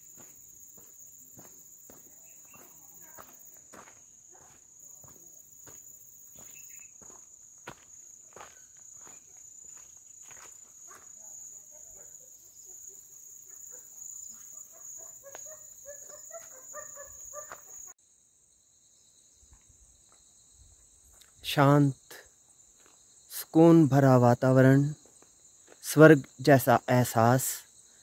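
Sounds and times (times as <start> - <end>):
footsteps on a trail: 0.0 - 11.8, 14.4 - 17.9, 22.7 - 23.1, 24.9 - 25.9
crickets chirping: 0.0 - 28.0.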